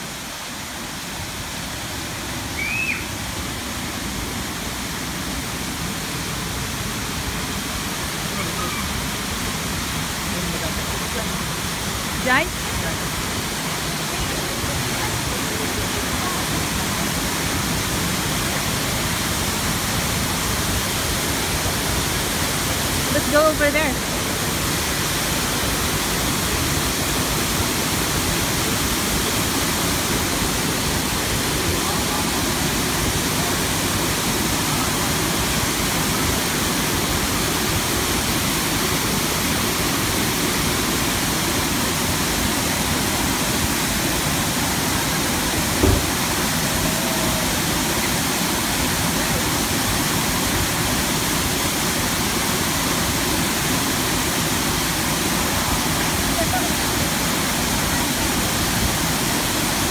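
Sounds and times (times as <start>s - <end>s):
waterfall rushing: 0.0s - 59.9s
low thump: 45.8s - 46.3s.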